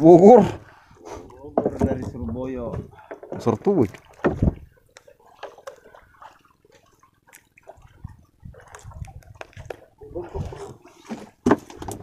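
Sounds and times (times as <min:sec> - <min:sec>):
low thumps: 0:04.2 - 0:04.7.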